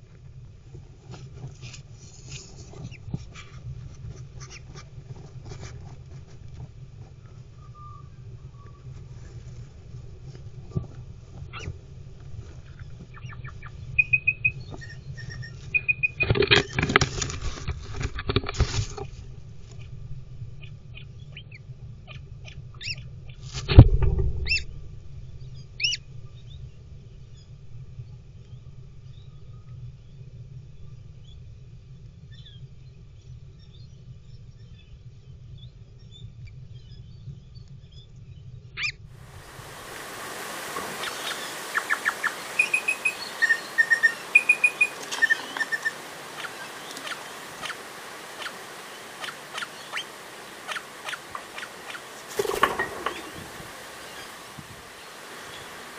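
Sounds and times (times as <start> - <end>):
outdoor hiss: 39.1 - 55.9
birds chirping: 39.2 - 55.9
bird scratching wood shavings: 49.2 - 53.5.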